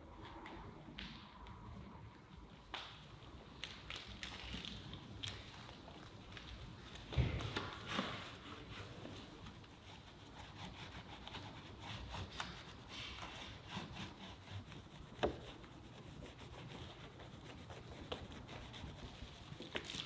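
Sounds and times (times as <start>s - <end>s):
wet rubbing of soapy foam: 8.0s - 20.0s.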